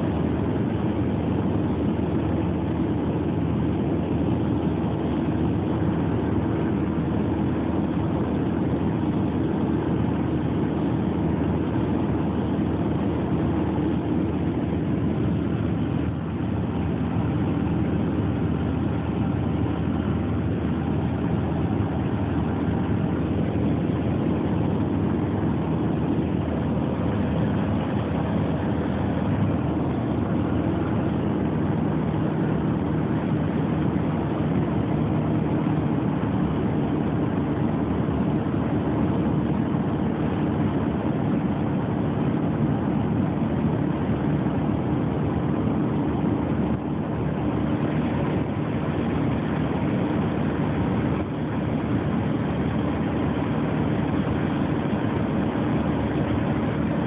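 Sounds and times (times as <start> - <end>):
light aircraft engine droning: 0.0 - 57.0.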